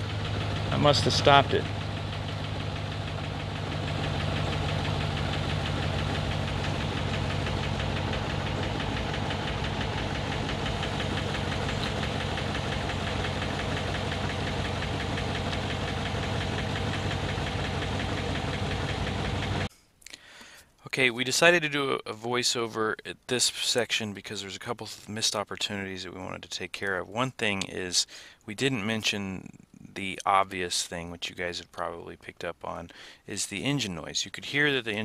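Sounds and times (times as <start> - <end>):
engine running rough with misfire: 0.0 - 19.7.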